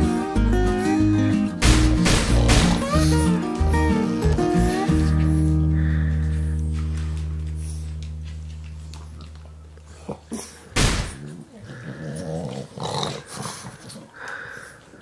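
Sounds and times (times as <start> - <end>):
dogs growling and grumbling: 2.2 - 3.4, 8.5 - 14.3
dog snorting: 9.9 - 14.3.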